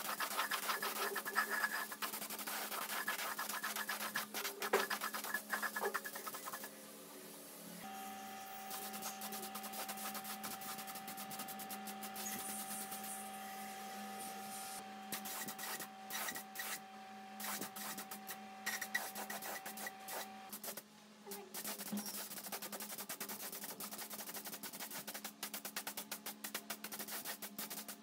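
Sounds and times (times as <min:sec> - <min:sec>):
steady hum: 0:00.0 - 0:20.6.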